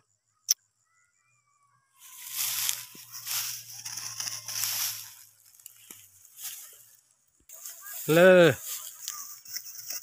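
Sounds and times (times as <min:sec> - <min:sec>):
footsteps crunching through straw: 0:02.0 - 0:10.0.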